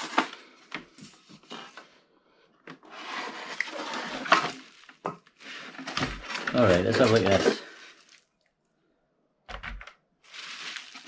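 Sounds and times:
polystyrene foam squeaking: 3.0s - 8.3s, 10.2s - 11.0s.

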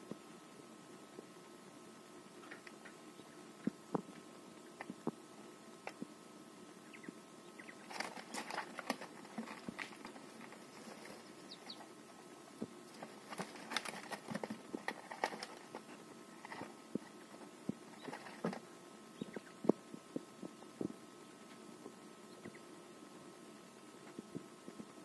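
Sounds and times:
quail pecking and scratching: 2.2s - 22.7s.

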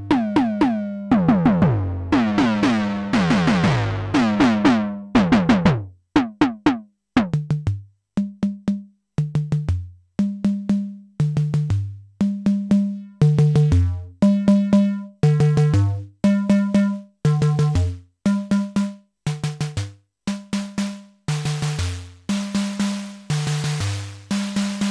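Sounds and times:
pitched electronic drum hits: 0.1s - 7.7s.

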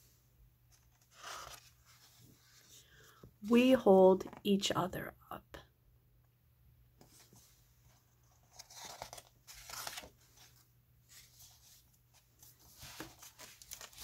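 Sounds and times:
paper pages rustling: 0.7s - 3.2s, 7.0s - 14.0s.

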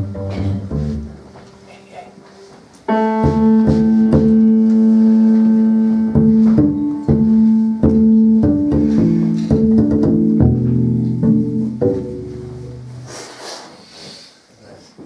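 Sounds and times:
plucked upright bass: 0.0s - 1.5s, 2.9s - 13.2s
grand piano chords: 0.0s - 13.1s.

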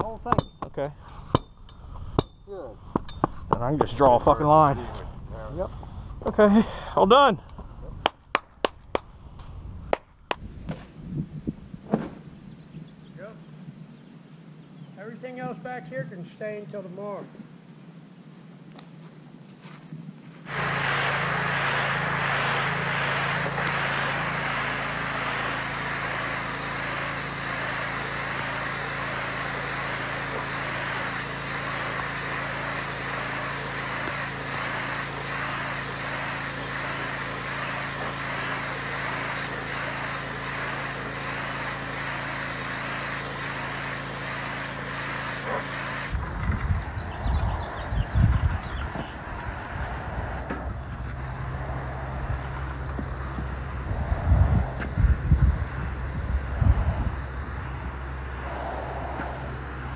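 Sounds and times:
water spray hissing on concrete: 20.5s - 46.2s
pressure washer motor hum: 20.5s - 59.9s.

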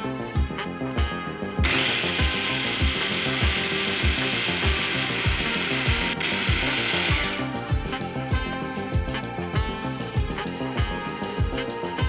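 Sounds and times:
hand blender whirring: 1.6s - 7.9s.

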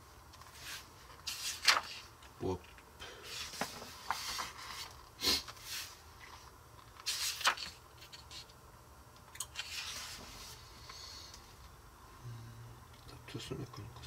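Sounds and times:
magazine pages rustling: 0.4s - 2.2s, 3.3s - 8.5s.

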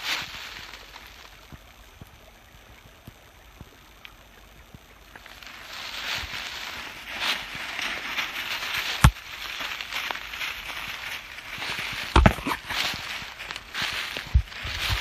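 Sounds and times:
footsteps through dry leaves: 0.0s - 1.6s, 5.1s - 15.0s
twigs snapping: 5.2s - 15.0s.

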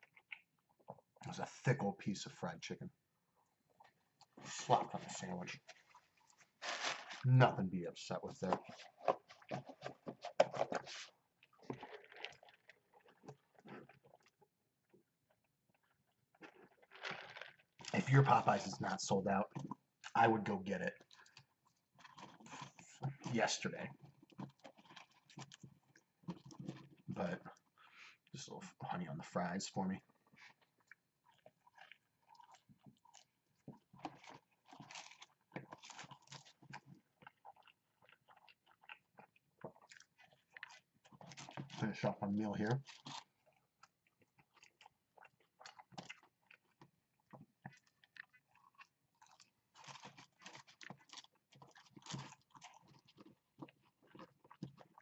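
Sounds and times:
sipping through a straw: 4.3s - 7.4s, 8.4s - 14.2s
cup rustling: 4.4s - 7.4s, 8.4s - 14.0s, 16.8s - 18.8s
chewing mouth sounds: 8.4s - 18.6s, 21.0s - 23.3s, 23.9s - 28.3s, 30.0s - 41.9s, 42.8s - 55.0s.

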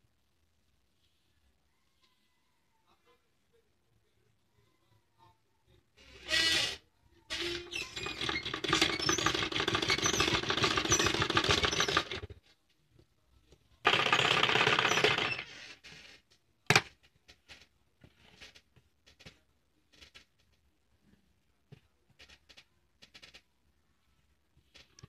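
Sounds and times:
sewing machine running: 7.9s - 12.3s, 13.9s - 15.6s.

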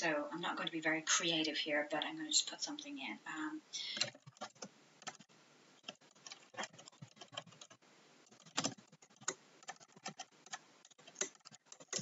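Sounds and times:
typing on computer keyboard: 4.0s - 12.0s.

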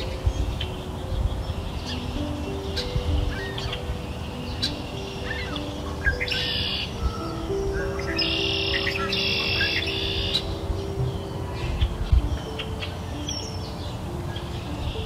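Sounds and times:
birds chirping trills: 0.0s - 15.0s
soft background music: 0.0s - 15.0s.

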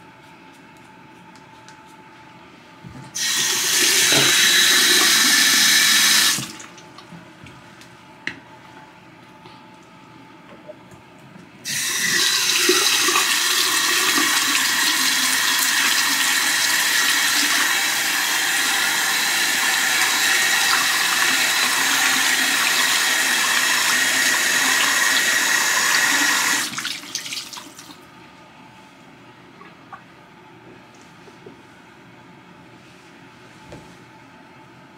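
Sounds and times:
tap running into sink: 3.8s - 4.6s.

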